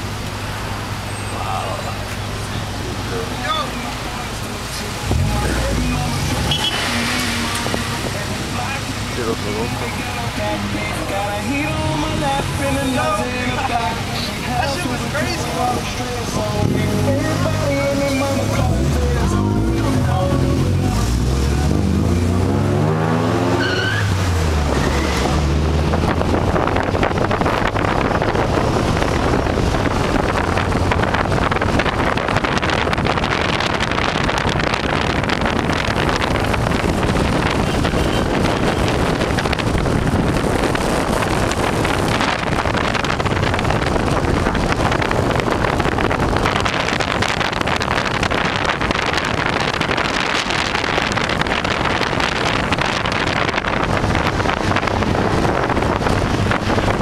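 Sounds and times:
road noise: 0.0s - 57.0s
wind rush: 5.1s - 19.2s, 19.8s - 57.0s
music: 16.4s - 21.9s.

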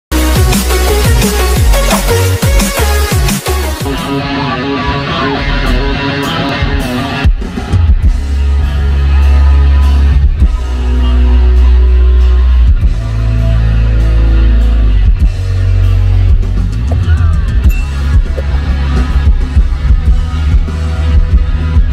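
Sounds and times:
drum kit: 0.1s - 4.2s, 6.7s - 8.6s, 15.0s - 21.9s
bass guitar: 0.1s - 21.9s
electric guitars: 0.3s - 21.9s.

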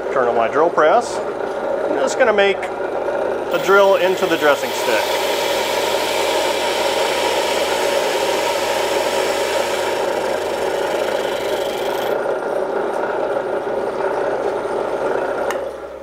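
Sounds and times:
drill press motor hum: 3.4s - 12.3s
core drill grinding rasp: 3.5s - 12.2s.

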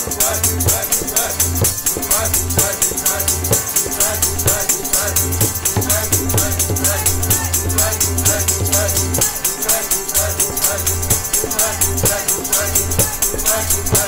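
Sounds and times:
harmonium: 0.0s - 14.0s
jingling percussion: 0.0s - 14.0s
tabla: 0.0s - 14.0s
voices singing: 0.0s - 14.0s.

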